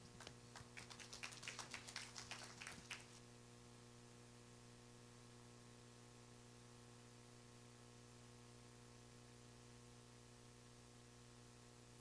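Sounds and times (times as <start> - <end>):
low electrical hum: 0.0 - 12.0.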